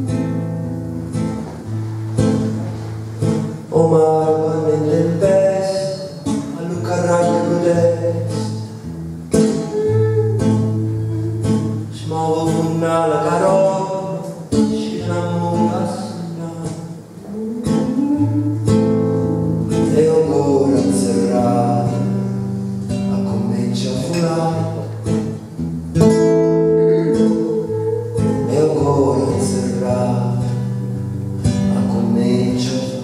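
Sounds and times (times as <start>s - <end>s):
acoustic guitar strumming: 0.0s - 33.0s
person singing into microphone: 9.4s - 19.0s, 19.8s - 22.1s, 26.3s - 30.7s.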